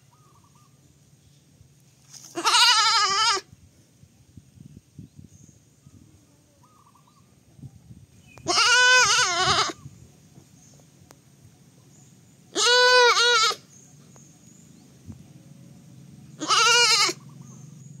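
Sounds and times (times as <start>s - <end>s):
baby goat bleating: 2.3s - 3.5s, 8.4s - 9.8s, 12.5s - 13.7s, 16.4s - 17.3s.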